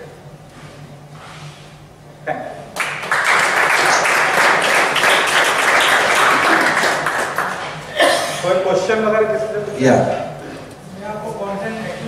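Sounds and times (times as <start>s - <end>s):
audience applauding: 2.8s - 7.9s.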